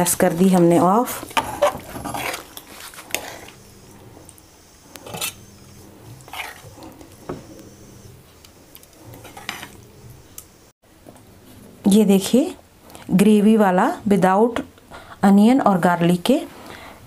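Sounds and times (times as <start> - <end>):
metal spatula scraping a pan: 0.2 - 4.3, 5.0 - 8.1, 9.0 - 9.9.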